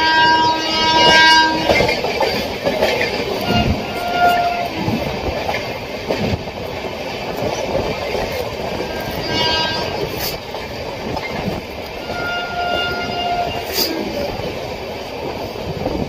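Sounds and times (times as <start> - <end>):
train horn: 0.0 - 1.9, 3.4 - 4.8, 8.8 - 10.4, 12.0 - 14.1
train rumbling clickety-clack: 0.0 - 16.0.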